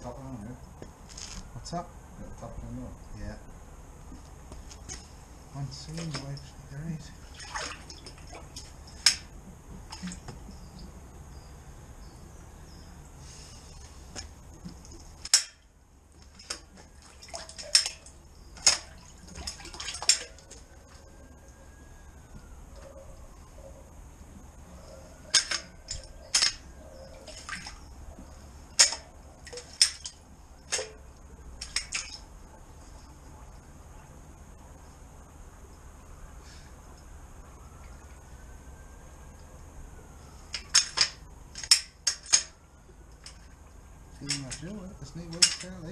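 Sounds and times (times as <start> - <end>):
faint low hum: 0.0 - 45.9
water splashing: 7.1 - 10.3, 16.2 - 20.6, 27.2 - 27.9, 31.6 - 32.3
drain rods clicking and knocking: 14.2 - 15.6, 16.2 - 20.6, 27.2 - 31.0, 44.2 - 45.9.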